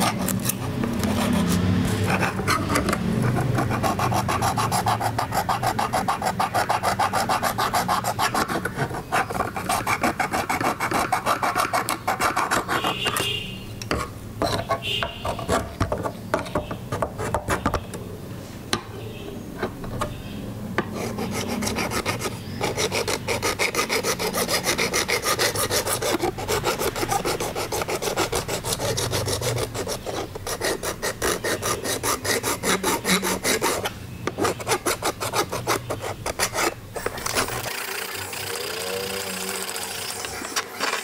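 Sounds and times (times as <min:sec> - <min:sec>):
metal file rasping on steel: 0:00.0 - 0:13.2, 0:20.9 - 0:37.6.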